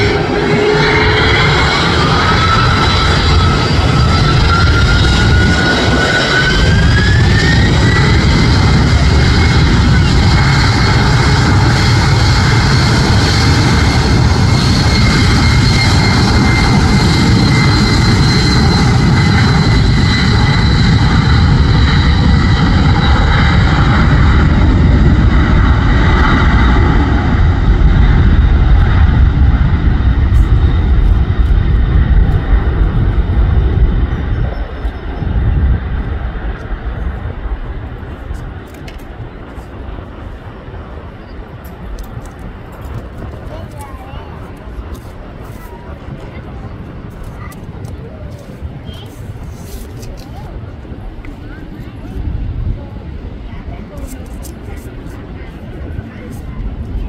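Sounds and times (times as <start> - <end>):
jet engines at takeoff thrust: 0.0 - 57.0.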